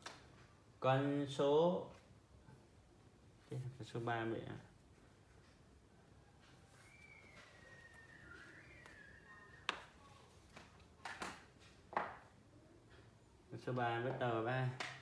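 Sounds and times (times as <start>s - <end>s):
faint falling whistle tone: 6.8s - 10.0s.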